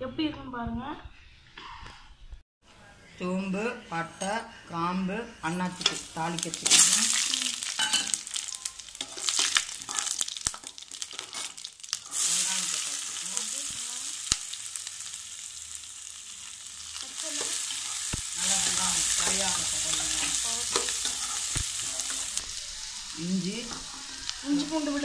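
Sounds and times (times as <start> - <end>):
onions sizzling in oil: 5.4 - 25.0
spices crackling in hot oil: 5.5 - 25.0.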